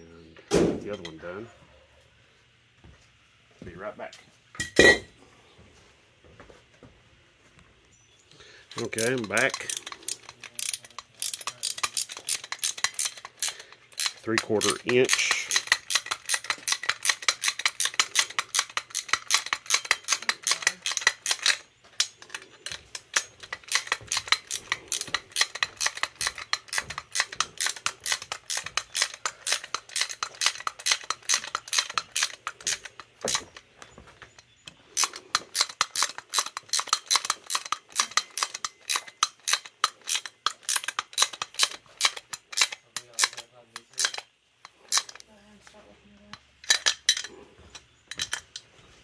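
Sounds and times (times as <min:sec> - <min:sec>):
ratchet wrench clicking: 0:08.7 - 0:33.4, 0:35.0 - 0:45.2.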